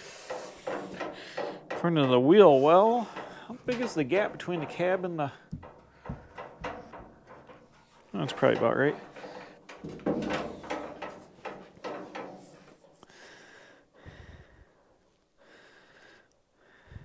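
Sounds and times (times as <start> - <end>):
metal panel scraping and knocking: 0.0 - 13.0.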